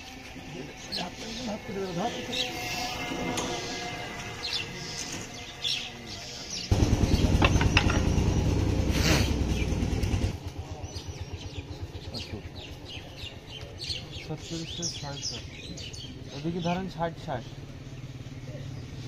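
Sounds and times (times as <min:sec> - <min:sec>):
small birds chirping: 0:00.0 - 0:19.0
low pulsing rumble: 0:00.4 - 0:13.6.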